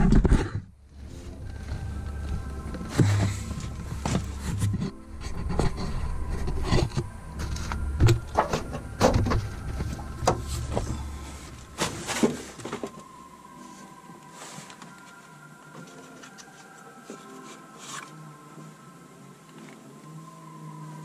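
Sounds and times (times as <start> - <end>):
steady low rumble: 0.7 - 12.6
objects knocking and bumping: 2.8 - 13.0.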